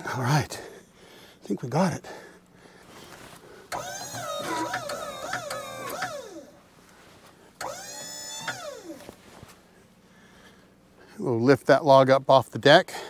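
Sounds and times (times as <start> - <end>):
hydraulic pump motor whining: 3.7 - 6.7, 7.6 - 9.2.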